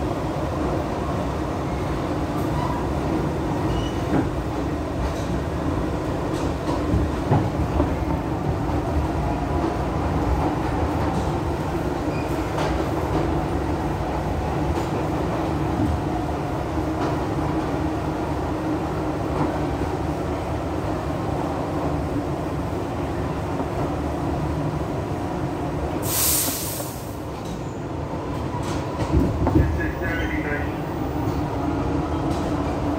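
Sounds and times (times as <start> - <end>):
subway wheels rumbling on rail: 0.0 - 32.9
loud hiss: 26.0 - 27.2.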